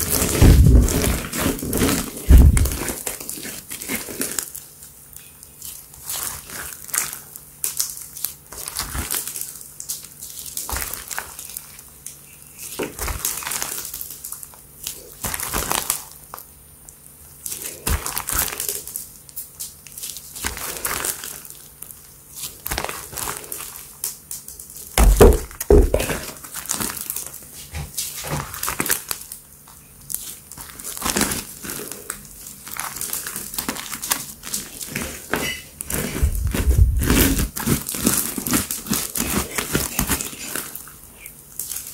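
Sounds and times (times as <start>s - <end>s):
slime squelching and crackling: 0.0s - 16.5s, 17.2s - 41.9s
heavy thump: 0.4s - 1.1s, 2.3s - 2.8s, 25.0s - 26.2s.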